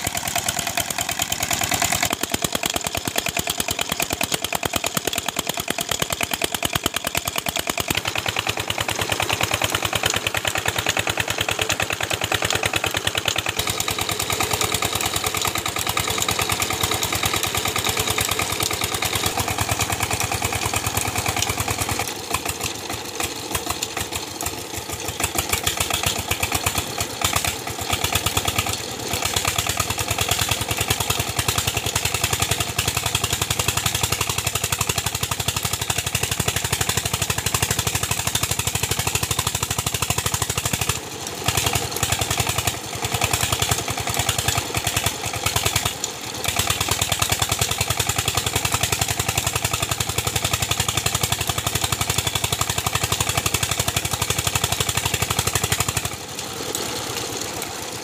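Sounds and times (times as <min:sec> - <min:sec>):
diesel engine knocking: 0:00.0 - 0:57.5
water gushing from pipe: 0:00.1 - 0:58.0.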